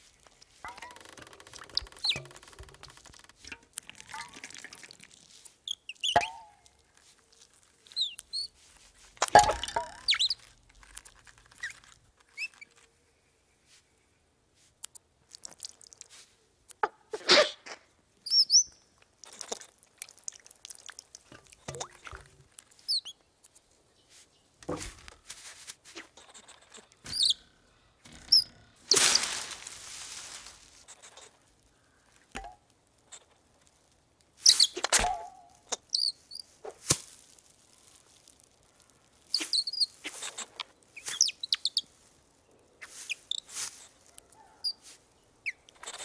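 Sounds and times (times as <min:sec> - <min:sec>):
rustles and clicks: 0:00.0 - 0:13.0, 0:23.5 - 0:45.0
high cartoon chirps and peeps: 0:26.3 - 0:27.5.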